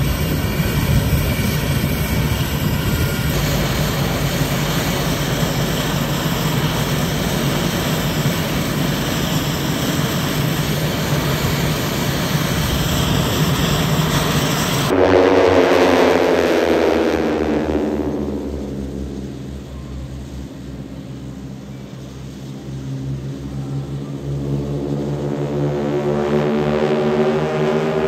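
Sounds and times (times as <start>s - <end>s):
turboprop engine running: 0.0s - 28.0s
loud sound with falling pitch: 9.9s - 28.0s.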